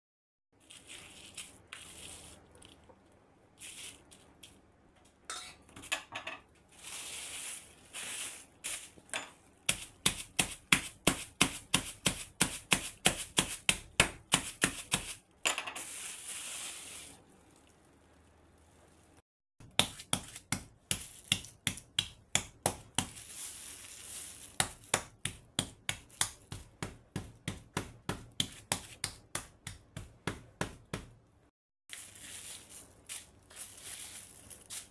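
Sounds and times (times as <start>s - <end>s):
plastic bag crinkling: 0.6s - 3.0s, 23.1s - 24.9s, 31.9s - 34.9s
mallet pounding meat: 24.6s - 31.2s.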